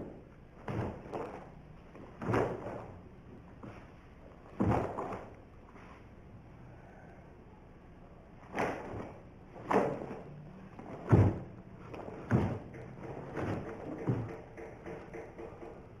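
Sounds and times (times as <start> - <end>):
martial arts uniform swishing: 0.0 - 6.2, 8.4 - 14.2
bare feet thudding on wooden floor: 0.6 - 2.9, 4.5 - 5.3, 8.5 - 14.5.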